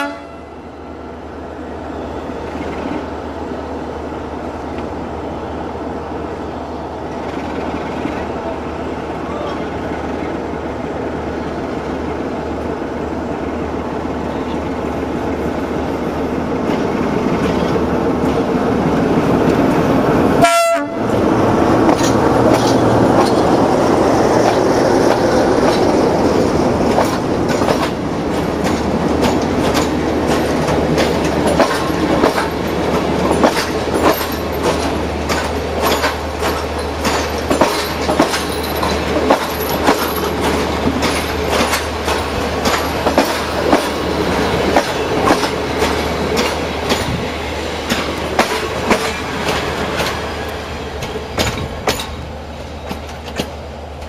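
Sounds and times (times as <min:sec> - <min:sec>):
low train hum: 0:00.0 - 0:54.0
train wheels clickety-clack: 0:21.7 - 0:54.0.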